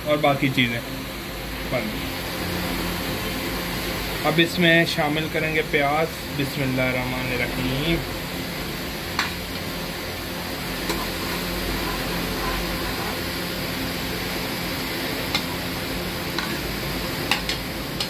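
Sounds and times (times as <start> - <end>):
onions sizzling in oil: 7.3 - 18.0.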